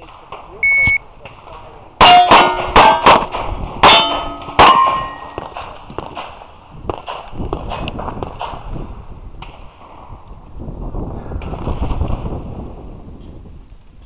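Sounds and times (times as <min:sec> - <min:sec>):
steel plate ringing: 0:02.0 - 0:03.2, 0:03.8 - 0:05.5
pistol shots: 0:02.0 - 0:08.7.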